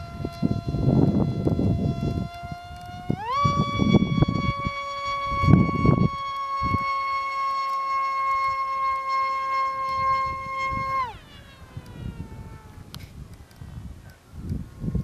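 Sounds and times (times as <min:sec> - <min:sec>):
model plane motor whining: 0:00.0 - 0:13.6.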